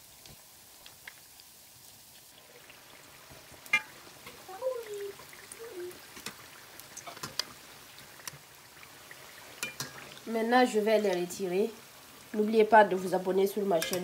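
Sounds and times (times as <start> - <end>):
food deep-frying in oil: 0.0 - 14.0
metal spoon clink: 13.8 - 14.0.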